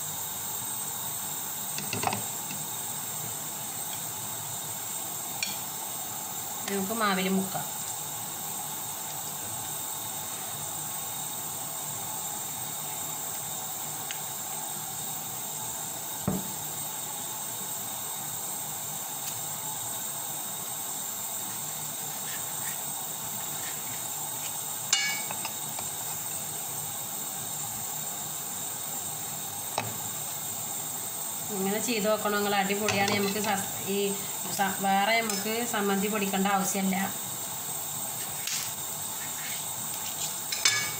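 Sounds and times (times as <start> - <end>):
steady background hiss: 0.0 - 40.9
kitchen utensil knock: 16.3 - 16.5
kitchen utensil clink: 24.9 - 25.5, 40.5 - 40.9.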